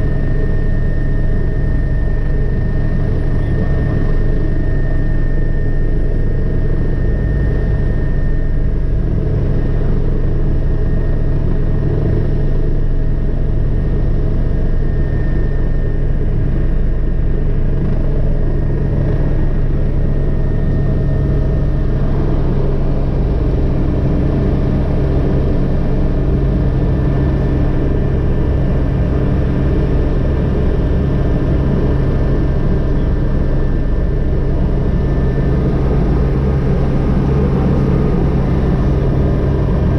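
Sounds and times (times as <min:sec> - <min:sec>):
turbine whine: 0:00.0 - 0:39.9
helicopter rotor thrum: 0:20.5 - 0:39.9.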